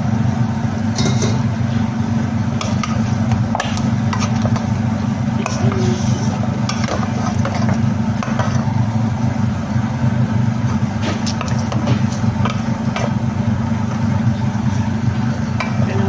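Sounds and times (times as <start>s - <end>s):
steady low rumble: 0.0s - 16.0s
wooden spatula scraping pan: 4.0s - 4.7s, 5.4s - 8.7s.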